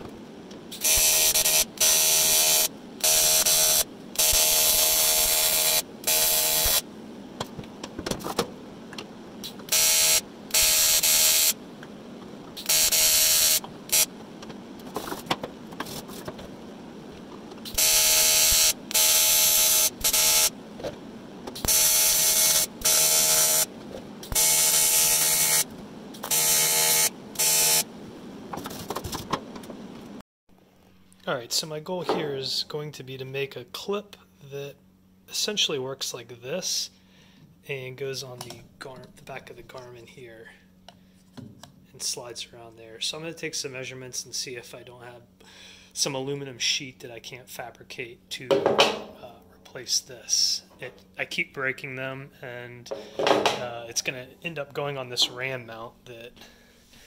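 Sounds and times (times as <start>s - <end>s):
welding arc buzzing: 0.7s - 6.9s, 9.4s - 11.7s, 12.5s - 14.2s, 17.6s - 20.6s, 21.5s - 27.9s.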